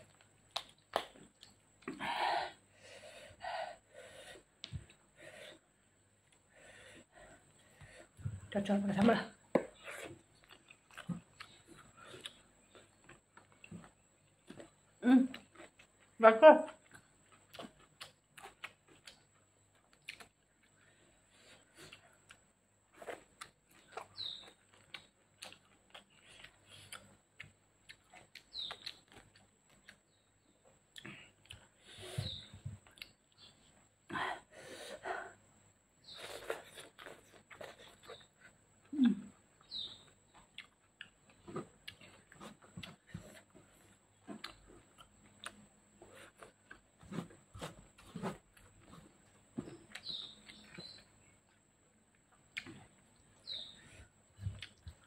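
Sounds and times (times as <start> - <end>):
chewing and lip smacks: 0.0 - 2.0, 9.7 - 16.1, 16.8 - 20.9, 21.8 - 30.2, 30.9 - 31.7, 32.8 - 33.5, 39.6 - 49.3, 54.4 - 55.0
chewing clicks: 23.4 - 30.0, 39.6 - 42.2.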